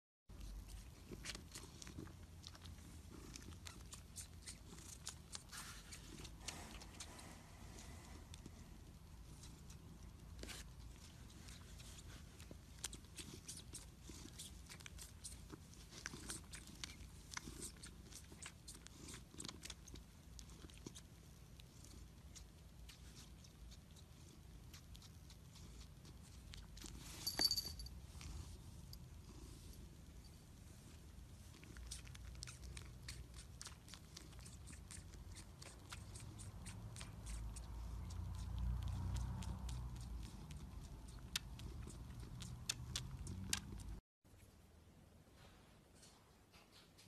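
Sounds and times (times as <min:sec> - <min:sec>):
cat purring: 0:00.3 - 0:44.0
cat tongue clicks licking: 0:31.9 - 0:43.9.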